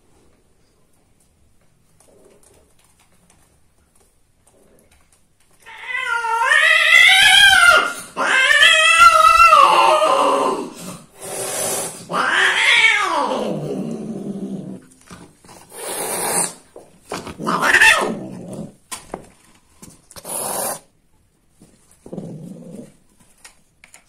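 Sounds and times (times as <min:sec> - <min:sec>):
cat caterwauling and growling: 0:05.6 - 0:14.9, 0:17.3 - 0:18.8
cat hissing: 0:06.0 - 0:14.8, 0:15.6 - 0:16.7, 0:17.4 - 0:18.8, 0:20.1 - 0:21.0.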